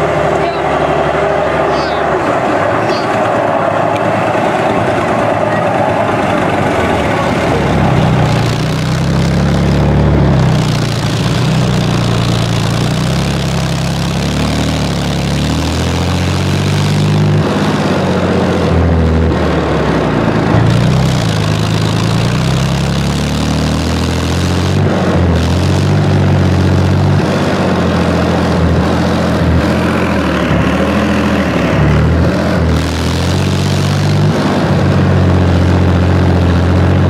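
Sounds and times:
tracked vehicle diesel engine: 0.0 - 37.0.

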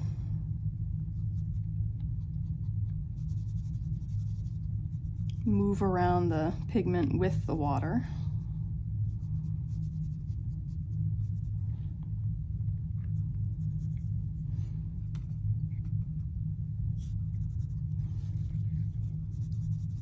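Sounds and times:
steady low hum: 0.0 - 20.0
brush scrubbing on paper: 1.1 - 6.2, 9.0 - 11.8, 13.1 - 20.0.

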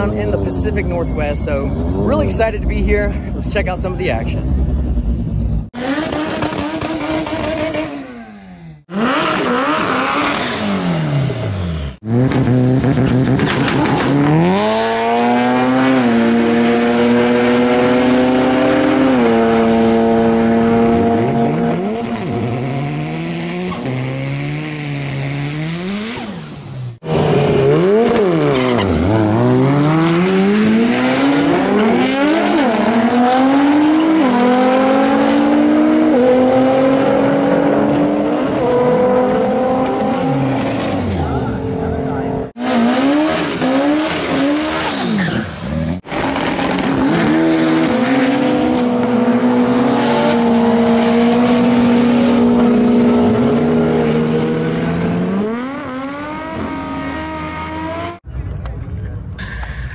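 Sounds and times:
drag car engines revving: 3.7 - 59.9
tire squeal: 27.4 - 30.4, 42.6 - 48.9.

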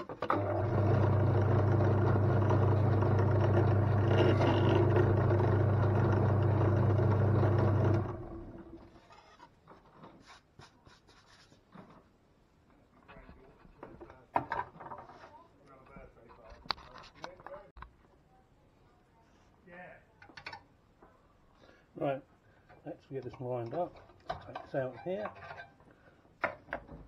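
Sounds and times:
drill press motor hum: 0.2 - 8.9
knocks and scrapes on drill table: 3.2 - 5.4.

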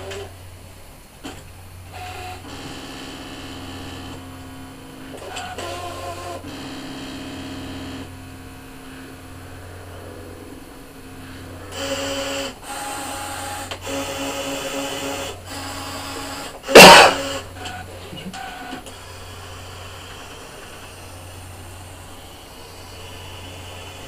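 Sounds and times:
cutting machine motors whining: 0.0 - 24.0
low steady hum: 0.0 - 24.0
sharp loud knock: 16.8 - 17.2.

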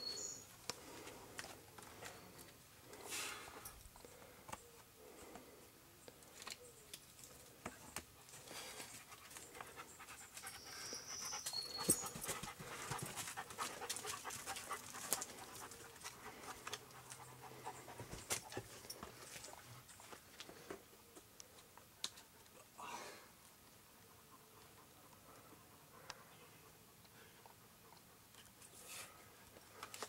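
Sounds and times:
dog panting: 8.9 - 19.9, 23.9 - 28.4
small clicks and scuffs: 29.5 - 30.0.

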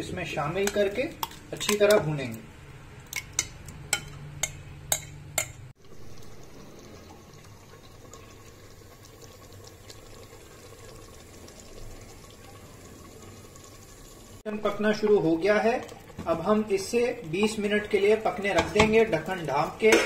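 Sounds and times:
chicken sizzling and bubbling: 5.7 - 20.0.

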